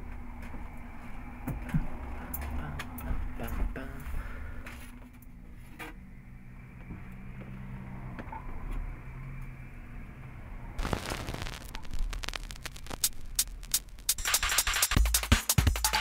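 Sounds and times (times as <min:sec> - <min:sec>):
turntable and amplifier hum: 0:05.2 - 0:16.0
stylus dropping onto record: 0:10.8 - 0:15.0
vinyl crackle and pops: 0:10.8 - 0:15.4.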